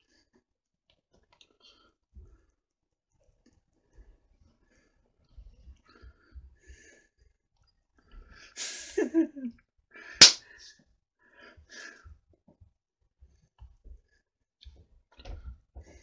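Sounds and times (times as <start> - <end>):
man laughing: 8.7 - 9.6.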